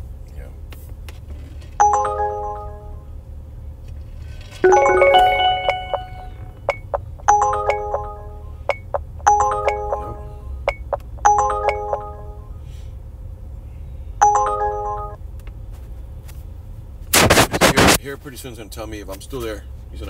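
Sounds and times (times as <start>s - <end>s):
low steady rumble: 0.0s - 17.1s
chime tones alert: 1.8s - 3.0s, 4.6s - 12.5s, 14.2s - 15.2s.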